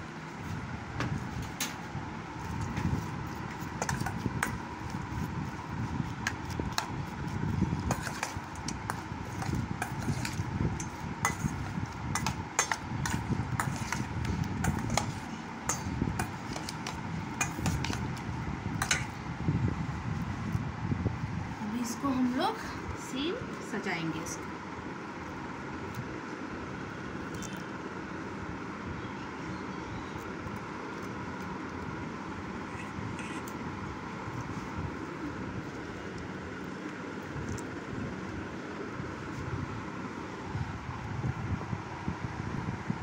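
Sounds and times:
faint hum: 0.0 - 43.0
spoon clinking on metal bowl: 9.8 - 16.7, 18.8 - 19.2.

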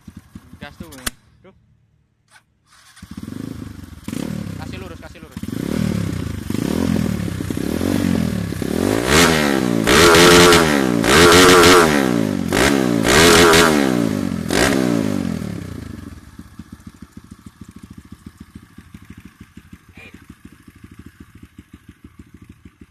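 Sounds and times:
motorcycle engine revving: 0.0 - 1.2, 2.6 - 22.9
engine idling: 0.0 - 1.8, 15.3 - 22.9.

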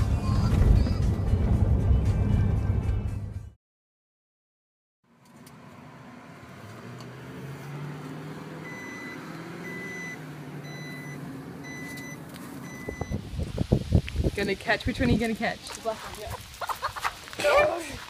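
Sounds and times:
vehicle cabin rumble: 0.0 - 3.3
electronic warning beeper: 8.6 - 13.2.

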